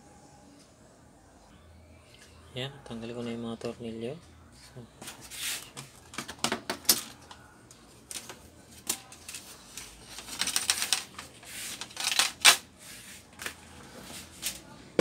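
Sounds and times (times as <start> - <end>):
plastic cover clicks and rattles: 6.1 - 7.3.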